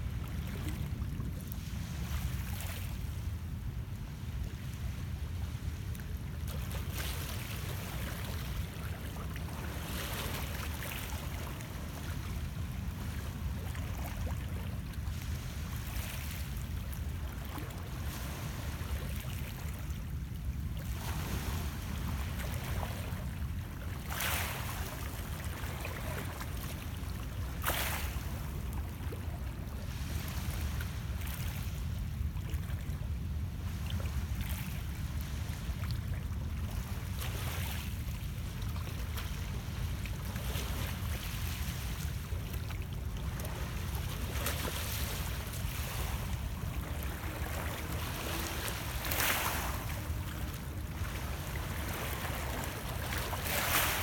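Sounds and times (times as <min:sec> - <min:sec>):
waves splashing against rocks: 0:44.4 - 0:54.0.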